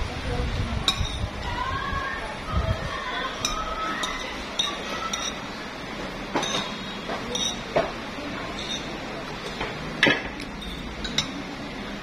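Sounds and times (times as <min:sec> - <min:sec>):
tableware clinking: 0:00.9 - 0:01.3, 0:03.4 - 0:05.6, 0:06.2 - 0:11.6.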